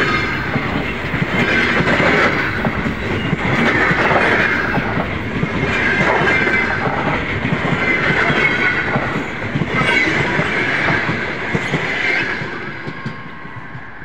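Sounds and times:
train rumble: 0:00.0 - 0:14.0
train wheels clacking over rail joints: 0:00.0 - 0:14.0.

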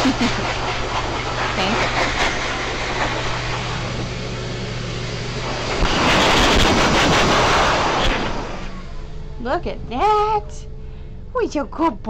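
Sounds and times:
pet dryer blowing air: 0:00.0 - 0:09.1
machine hum: 0:00.0 - 0:12.0.

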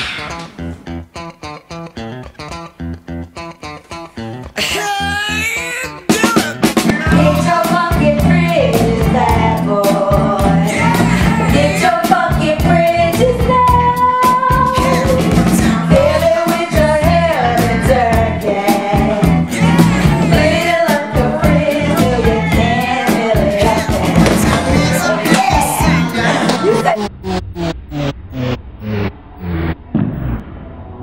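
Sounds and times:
upbeat pop song with singing: 0:06.1 - 0:27.0
steady drum beat: 0:06.1 - 0:27.2.

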